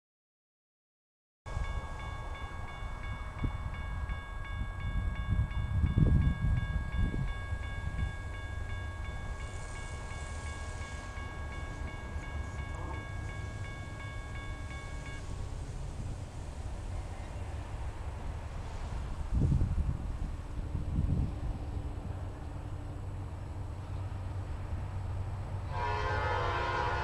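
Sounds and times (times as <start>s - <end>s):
crossing warning bell ringing: 1.5s - 15.4s.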